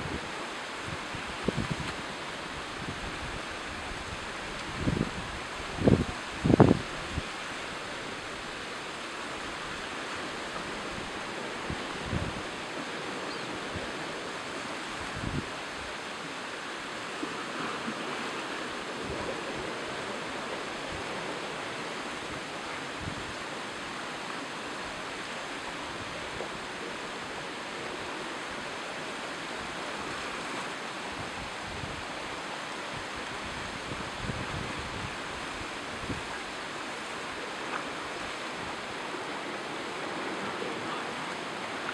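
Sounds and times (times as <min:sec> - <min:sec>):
wind buffeting microphone: 0:00.0 - 0:07.3, 0:10.7 - 0:14.2, 0:14.9 - 0:15.9, 0:32.9 - 0:36.4
sea surf breaking on rocks: 0:00.0 - 0:41.9.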